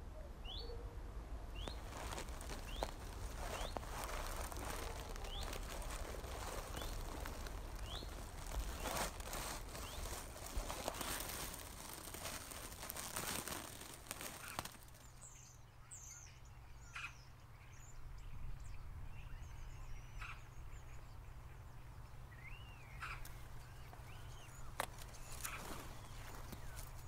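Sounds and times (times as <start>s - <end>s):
small birds chirping: 1.5s - 27.0s
rustling of grass: 1.6s - 15.4s, 23.1s - 27.0s.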